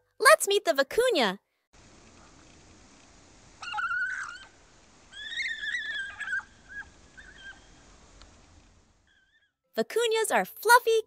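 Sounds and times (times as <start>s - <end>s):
vicuna calling: 3.6s - 7.9s.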